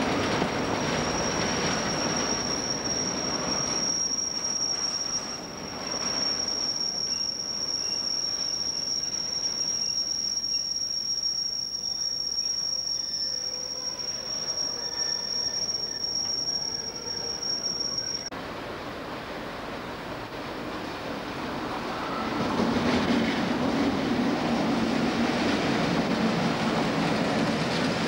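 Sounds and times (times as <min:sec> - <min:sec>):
train wheels rumbling on rail: 0:00.0 - 0:28.0
high-pitched squeal: 0:00.7 - 0:18.3.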